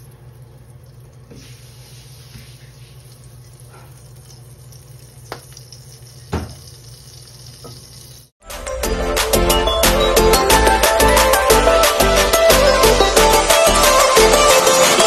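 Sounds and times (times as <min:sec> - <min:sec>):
oil pouring: 0:00.0 - 0:08.3
fat sizzling in a wok: 0:01.3 - 0:08.3.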